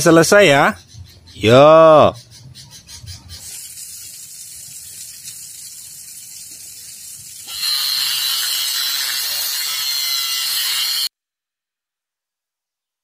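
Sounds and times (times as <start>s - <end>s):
angle grinder cutting steel: 7.4s - 11.1s.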